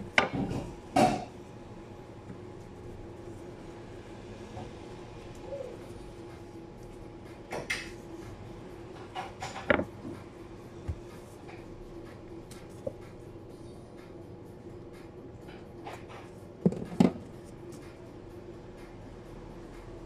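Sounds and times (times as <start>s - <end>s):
steady hum: 0.0s - 20.0s
kitchen knocks and clatters: 0.2s - 1.3s, 9.0s - 10.2s.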